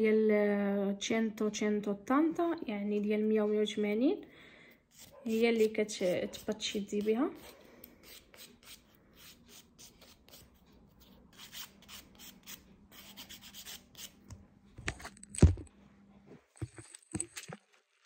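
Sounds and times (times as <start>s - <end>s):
nail file rasping on fingernail: 4.9s - 14.2s.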